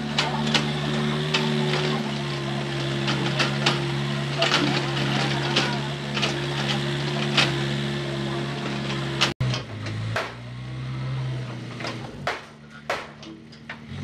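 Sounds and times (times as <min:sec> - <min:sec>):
diesel engine running: 0:00.0 - 0:14.0
sharp knocks: 0:09.5 - 0:10.5, 0:12.2 - 0:13.8.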